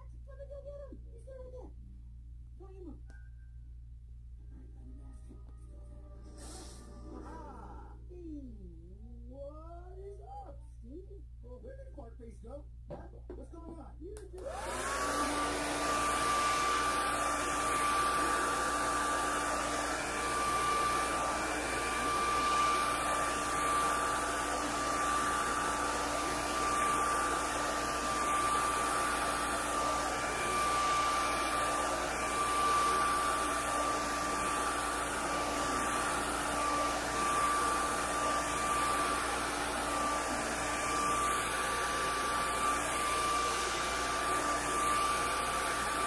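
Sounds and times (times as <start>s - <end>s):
hair dryer blowing: 14.4s - 46.0s.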